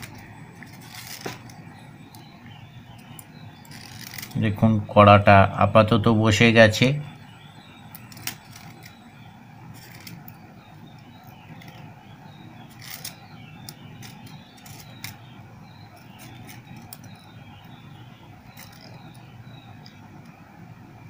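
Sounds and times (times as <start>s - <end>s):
fingers winding thread: 3.0s - 4.4s, 7.9s - 9.0s, 9.7s - 11.9s, 12.6s - 15.2s, 15.9s - 20.0s.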